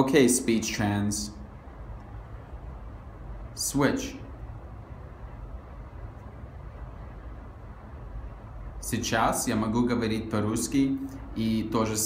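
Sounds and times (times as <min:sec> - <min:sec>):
low room hum: 0:00.0 - 0:12.0
person speaking: 0:03.5 - 0:04.4.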